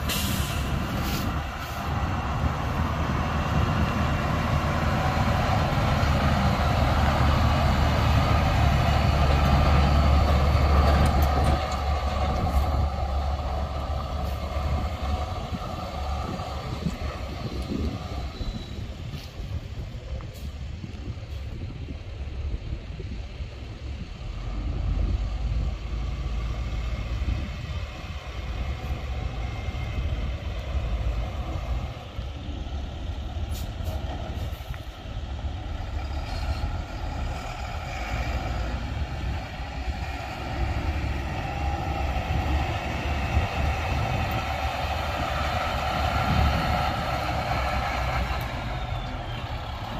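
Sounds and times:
diesel truck engine rumbling: 0.0 - 49.9.

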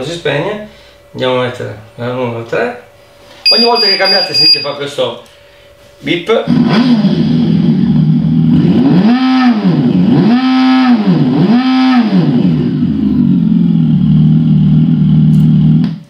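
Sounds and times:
synthetic motorcycle engine revving: 6.5 - 16.0.

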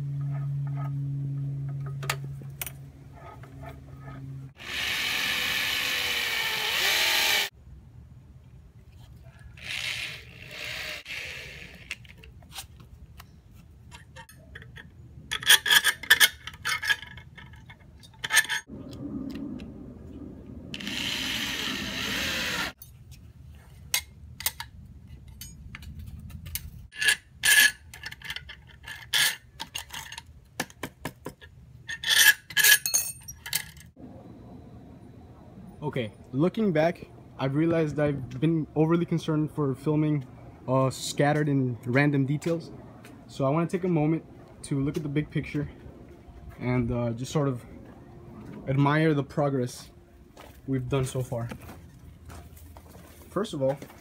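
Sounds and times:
cordless drill running: 4.6 - 7.5, 9.6 - 11.9, 20.8 - 22.8
metal brackets clinking and scraping: 11.9 - 18.7, 23.8 - 30.4, 31.4 - 34.0.

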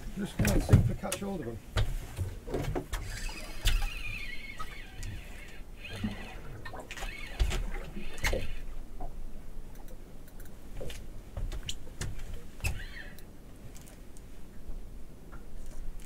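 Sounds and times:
fishing gear knocks and clicks: 0.4 - 3.1
squeaky creak: 2.9 - 8.7, 12.6 - 13.9.

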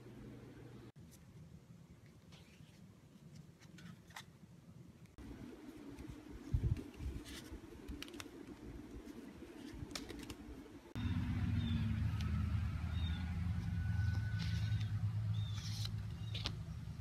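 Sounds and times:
playing cards clicking and snapping: 6.7 - 8.7, 9.6 - 10.6, 15.5 - 16.8
outdoor rumble: 10.9 - 17.0.

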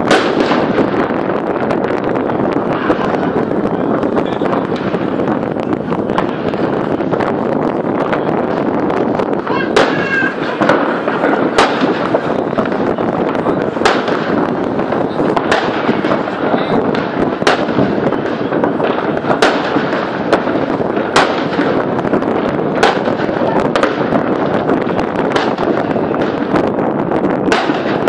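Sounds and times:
firecrackers cracking: 0.0 - 28.0
fireworks bangs: 0.0 - 28.0.

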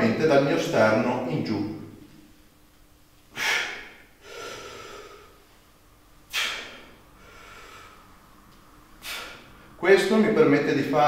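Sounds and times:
man breathing forcefully: 3.3 - 5.5, 6.3 - 8.2, 9.0 - 9.8.

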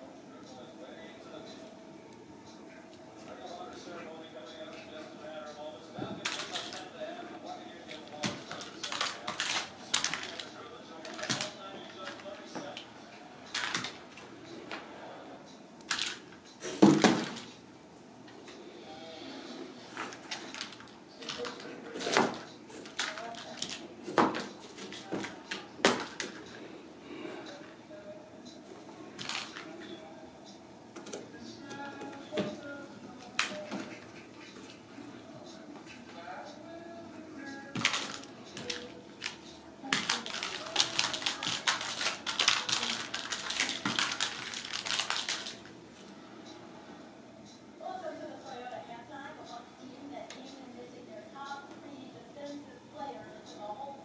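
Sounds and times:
kittens playing with rustles and clicks: 7.9 - 12.4, 37.8 - 45.6.

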